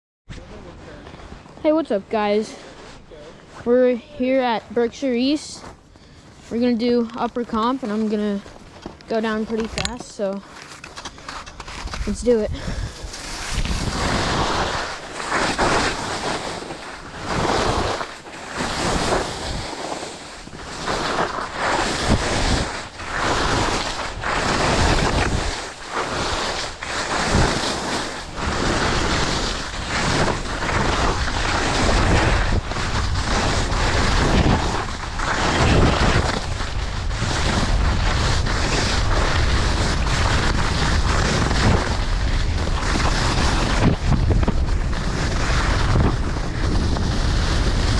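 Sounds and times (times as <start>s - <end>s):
ski edges scraping on snow: 0.3s - 47.9s
wind rushing over microphone: 11.6s - 47.9s.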